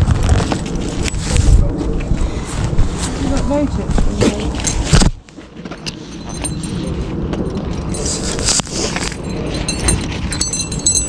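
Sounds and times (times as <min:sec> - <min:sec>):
bridle buckles jingling: 0:05.8 - 0:11.0.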